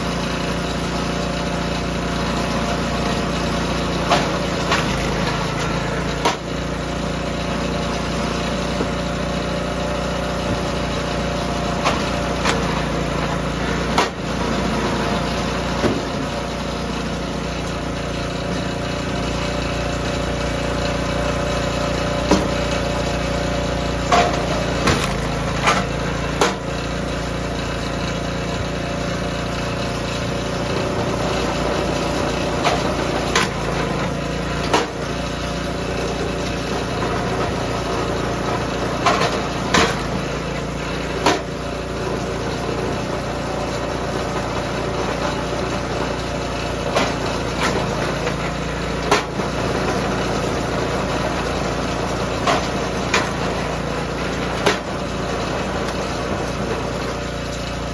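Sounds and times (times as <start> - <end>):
log splitter gas engine running: 0.0 - 57.9
wood cracking and knocking on steel: 24.1 - 26.6.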